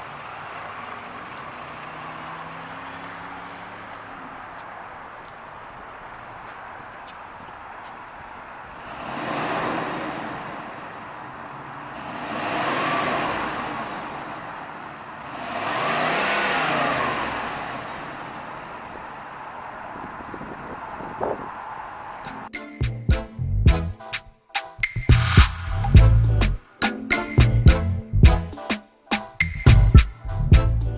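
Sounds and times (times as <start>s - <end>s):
car engine idling and revving: 0.0s - 22.5s.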